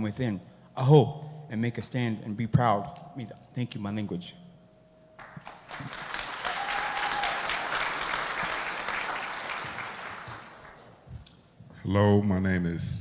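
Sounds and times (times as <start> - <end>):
audience applause: 5.2 - 11.0.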